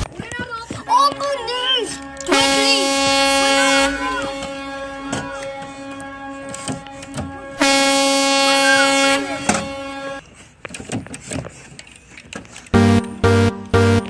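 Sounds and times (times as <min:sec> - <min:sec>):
steady horn-like tone: 0:01.6 - 0:10.2, 0:12.8 - 0:14.0.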